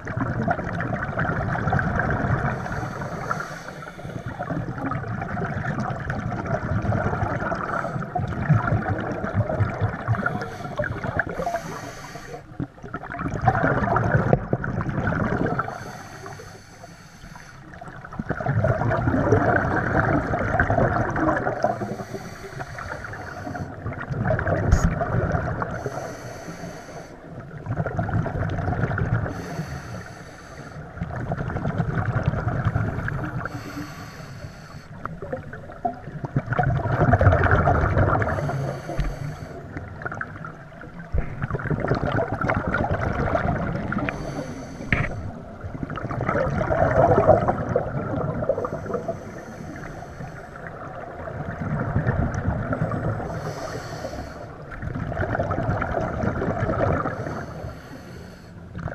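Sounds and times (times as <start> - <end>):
exhaled bubbles underwater: 0.0 - 58.9
regulator inhalation hiss: 2.6 - 4.4, 10.2 - 12.5, 15.6 - 17.7, 21.7 - 23.8, 25.8 - 27.3, 29.3 - 30.9, 33.4 - 35.0, 38.3 - 39.7, 44.1 - 45.4, 48.6 - 50.6, 53.3 - 54.6, 57.2 - 58.6.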